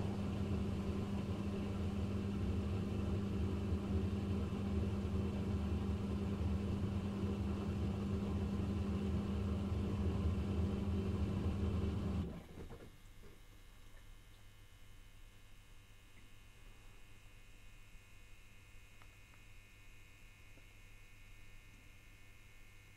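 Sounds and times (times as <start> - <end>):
dishwasher running: 0.0 - 12.9.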